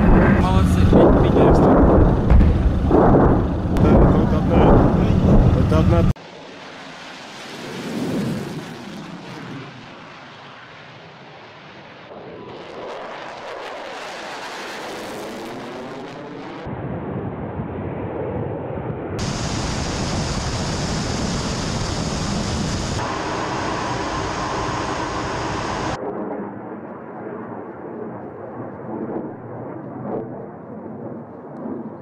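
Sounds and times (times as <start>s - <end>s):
jet engine roar: 0.0s - 32.0s
jet passing with sweeping hiss: 19.2s - 26.0s.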